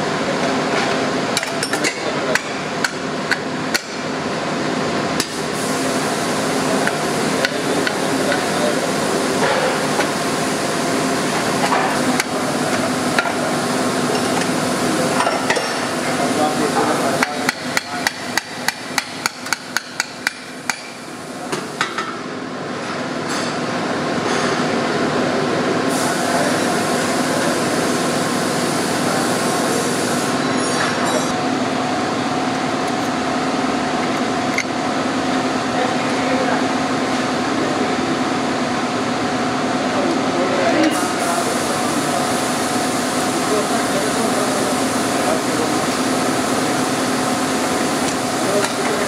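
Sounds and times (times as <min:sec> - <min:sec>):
workshop hum: 0:00.0 - 0:49.0
hammer tapping metal: 0:17.2 - 0:21.0.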